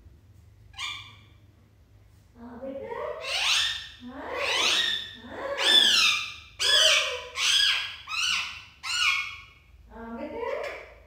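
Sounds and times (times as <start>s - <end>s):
parakeet high-pitched calls: 0.7s - 1.4s, 3.2s - 9.7s.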